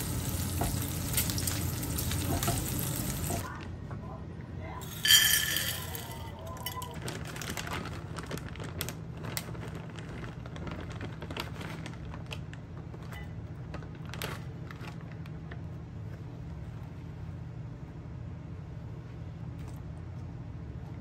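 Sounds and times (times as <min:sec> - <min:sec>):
corn kernels pouring into a dish: 0:04.8 - 0:07.0
cheese shaken into a dish: 0:04.8 - 0:08.2
bag crinkling: 0:04.8 - 0:15.2.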